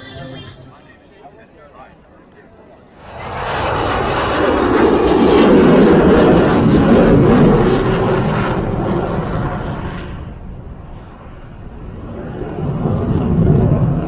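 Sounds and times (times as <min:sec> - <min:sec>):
jet flyby rushing noise: 0:03.0 - 0:14.0.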